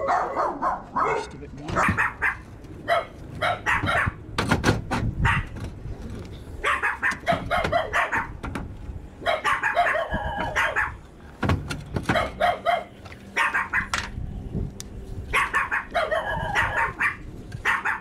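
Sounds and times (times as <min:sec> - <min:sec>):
dogs barking in high yaps: 0:00.0 - 0:04.3, 0:05.2 - 0:05.6, 0:06.6 - 0:08.4, 0:09.2 - 0:11.0, 0:12.1 - 0:14.1, 0:15.3 - 0:18.0
dog whining: 0:09.3 - 0:11.0.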